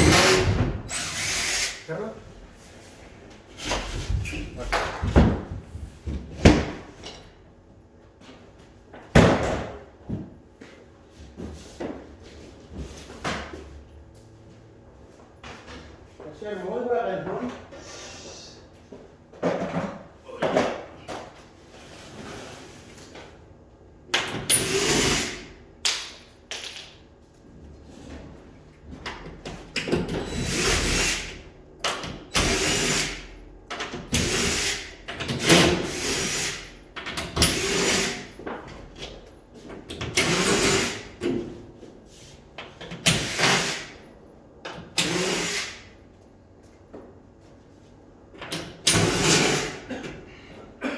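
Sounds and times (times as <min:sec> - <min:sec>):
power drill bursts: 0:00.0 - 0:01.8, 0:45.0 - 0:45.8.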